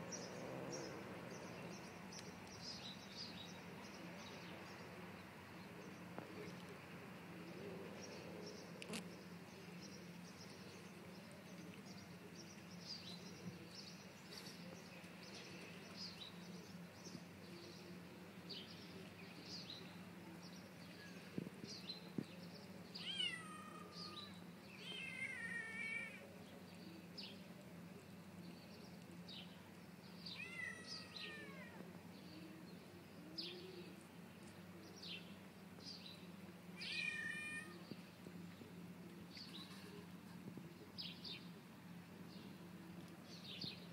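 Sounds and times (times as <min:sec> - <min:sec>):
cat meowing: 0:23.0 - 0:24.2, 0:30.4 - 0:31.8, 0:36.8 - 0:37.8.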